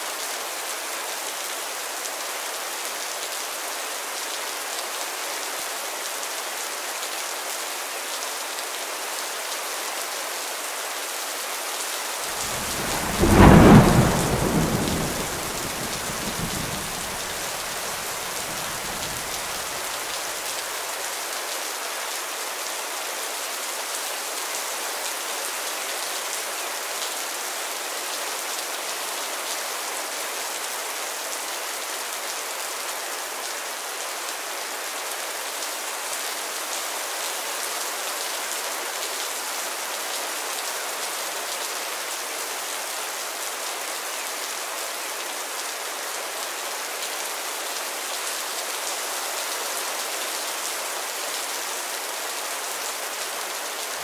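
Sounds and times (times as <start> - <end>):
steady rain falling: 0.0 - 54.0
low thunder rumble: 12.4 - 19.6.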